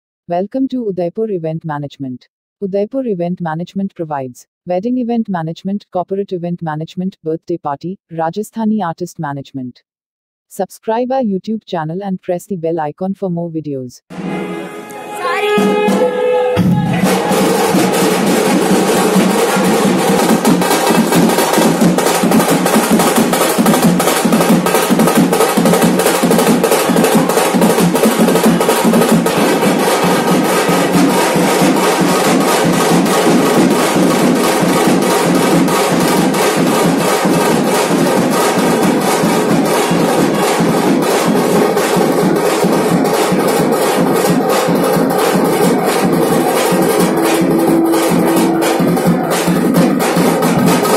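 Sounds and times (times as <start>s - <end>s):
dhol drums beating fast: 15.4s - 50.9s.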